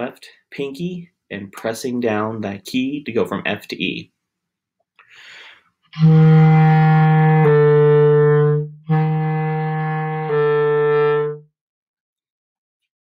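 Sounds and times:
quick breath: 0:05.0 - 0:05.8
clarinet low notes: 0:05.9 - 0:11.5.

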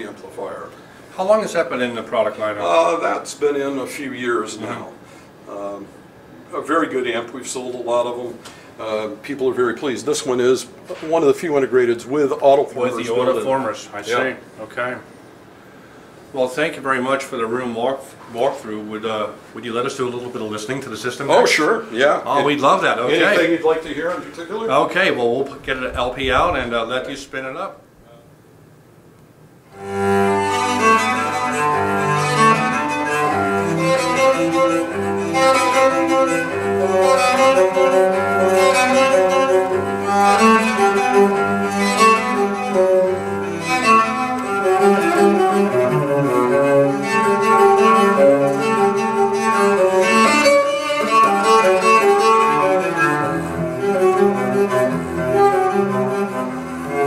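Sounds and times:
classical string music: 0:29.7 - 0:57.0.

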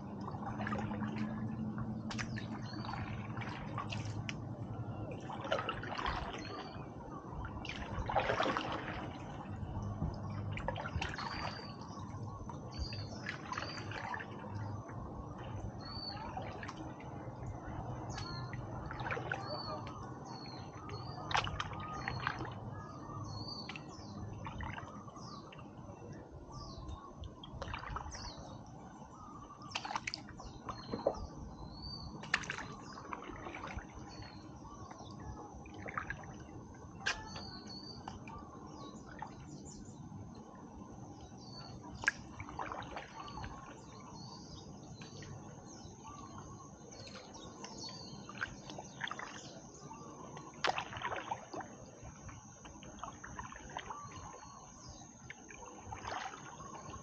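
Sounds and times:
water dripping and splashing: 0:00.1 - 0:06.8, 0:07.4 - 0:25.6, 0:27.2 - 0:28.6, 0:29.6 - 0:31.2, 0:32.2 - 0:38.3, 0:41.2 - 0:44.0, 0:46.3 - 0:49.6, 0:50.2 - 0:57.0.

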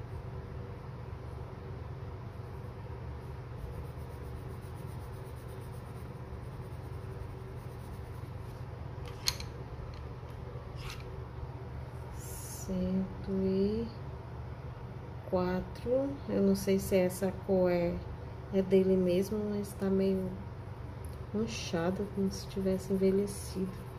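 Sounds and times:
steady low hum: 0:00.0 - 0:23.9
pencil scratching on paper: 0:02.3 - 0:08.6, 0:21.8 - 0:23.9.

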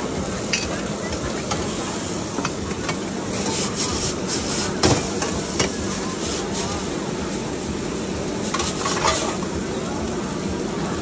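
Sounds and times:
food sizzling in a wok: 0:00.0 - 0:11.0
gas burner rushing: 0:00.0 - 0:11.0.

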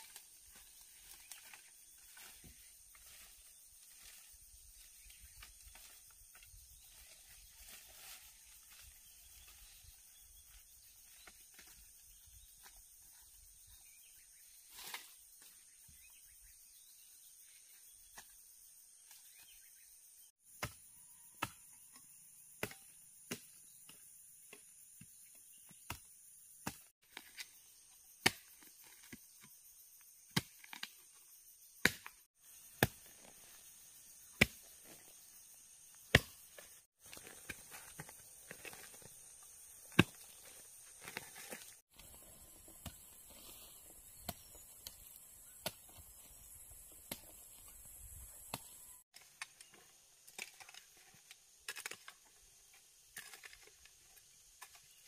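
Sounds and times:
hoe chopping into dry soil: 0:31.8 - 0:33.4, 0:34.2 - 0:35.2, 0:35.9 - 0:49.0.

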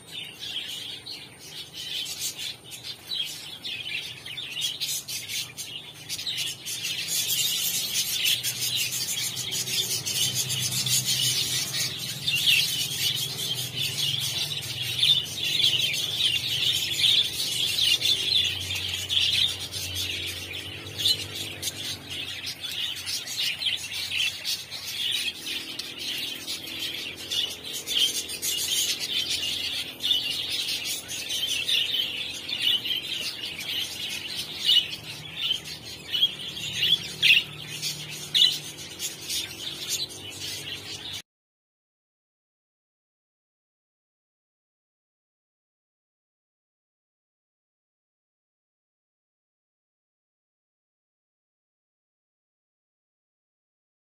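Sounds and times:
budgerigars chattering and chirping: 0:00.0 - 0:41.2.

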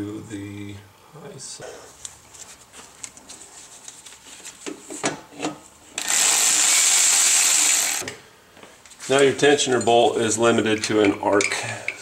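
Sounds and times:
cordless power tool running: 0:06.0 - 0:08.0.

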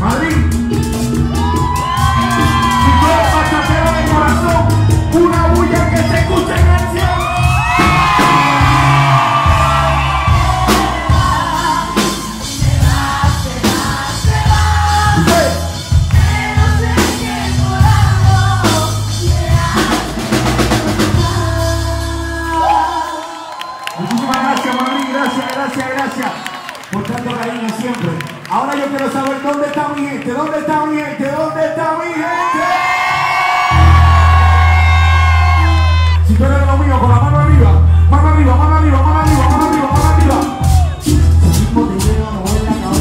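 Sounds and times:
live band playing: 0:00.0 - 0:29.3, 0:33.0 - 0:43.0
man singing: 0:02.2 - 0:07.4, 0:08.3 - 0:15.9, 0:16.6 - 0:23.3, 0:41.1 - 0:43.0
shouts from stage: 0:22.6 - 0:27.2, 0:32.2 - 0:36.3.

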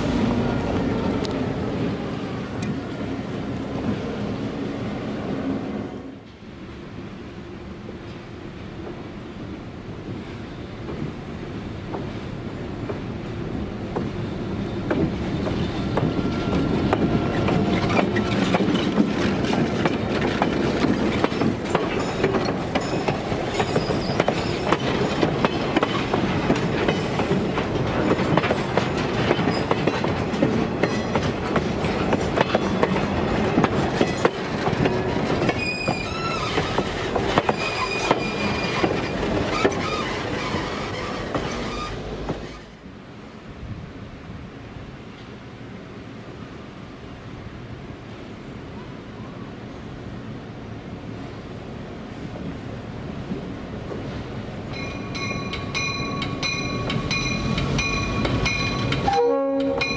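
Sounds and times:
diesel locomotive passing: 0:00.0 - 0:59.9
train wheels clattering over rail joints: 0:14.8 - 0:42.7, 0:53.2 - 0:59.9
wheel flanges squealing: 0:22.8 - 0:26.0, 0:34.0 - 0:42.8.

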